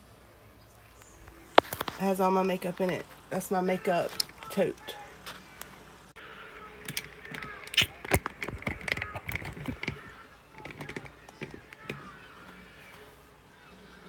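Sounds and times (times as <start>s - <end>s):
phone handling knocks and clicks: 6.6s - 12.2s.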